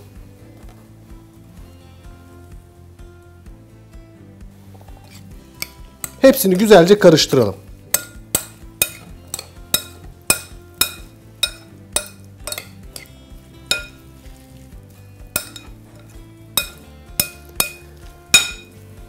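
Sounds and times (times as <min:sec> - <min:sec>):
spoon clinking against glass bowl: 0:05.0 - 0:06.3, 0:07.9 - 0:14.1, 0:15.3 - 0:18.8.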